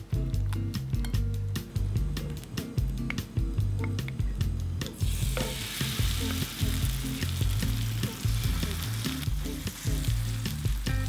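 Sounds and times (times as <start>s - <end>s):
background music: 0.0s - 11.0s
batter sizzling in hot oil: 5.0s - 11.0s.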